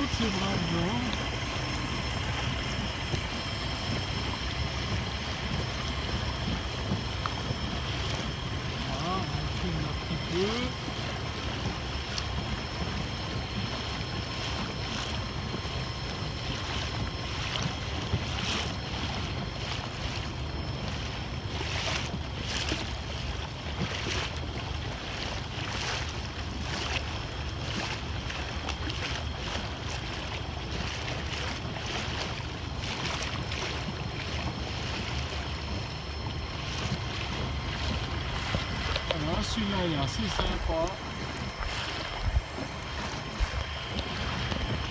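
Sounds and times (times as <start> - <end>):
outboard motor humming: 0.0 - 44.9
water splashing against hull: 0.0 - 44.9
wind buffeting microphone: 0.0 - 44.9.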